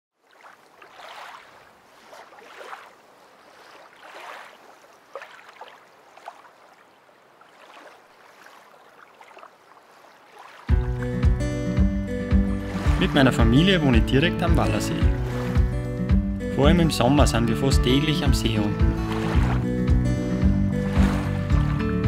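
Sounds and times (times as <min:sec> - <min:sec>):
water lapping: 0:00.1 - 0:11.5, 0:12.2 - 0:16.1, 0:17.9 - 0:22.0.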